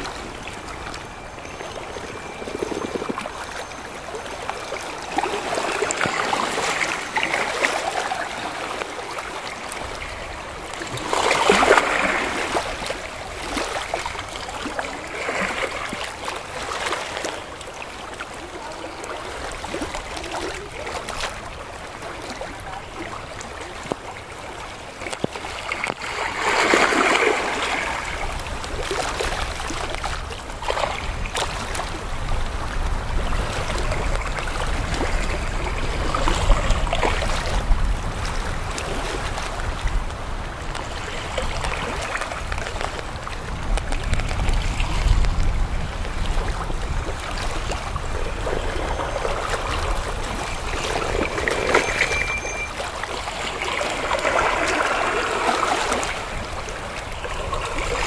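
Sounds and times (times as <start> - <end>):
water trickling among stones: 0.0 - 21.6
sea waves lapping against rocks: 0.0 - 58.0.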